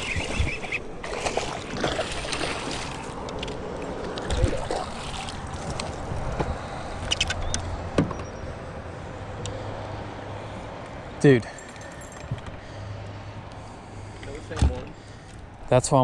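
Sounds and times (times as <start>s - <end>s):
water splashing and sloshing: 0.0s - 7.4s.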